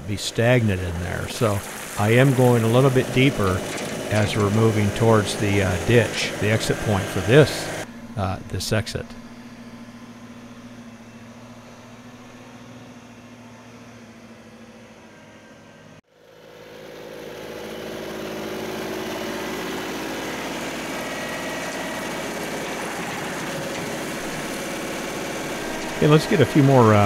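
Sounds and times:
tractor diesel engine running: 0.0s - 27.0s.

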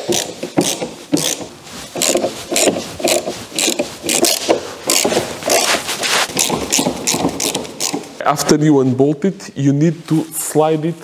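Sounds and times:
hand tool rasping clicks: 0.0s - 5.7s, 6.3s - 8.1s.

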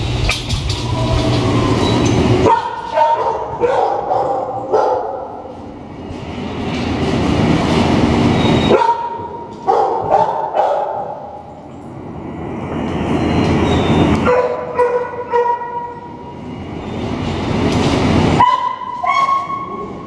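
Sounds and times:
dogs barking: 2.4s - 5.5s, 8.7s - 11.3s, 14.2s - 16.0s, 18.4s - 19.7s.

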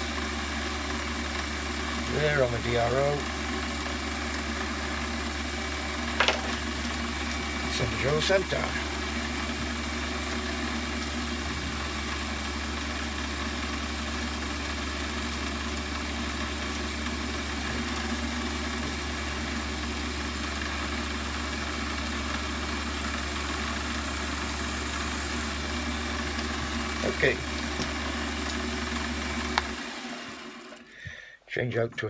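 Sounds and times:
lathe running hum: 0.0s - 30.9s.

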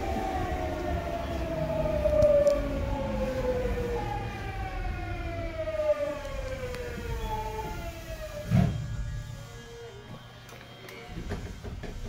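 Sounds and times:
train running gear rumble: 0.0s - 9.3s
electric train motors whining: 0.0s - 12.0s.

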